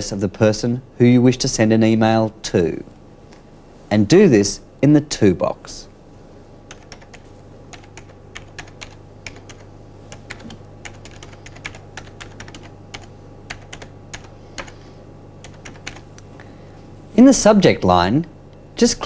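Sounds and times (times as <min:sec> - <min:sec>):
steady low hum: 0:00.0 - 0:19.0
keyboard typing: 0:06.7 - 0:14.8, 0:15.4 - 0:16.1.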